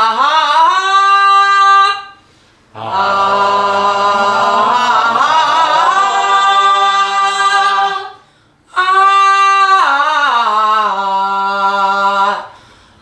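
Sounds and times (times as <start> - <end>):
women singing held vowels: 2.8 - 9.8.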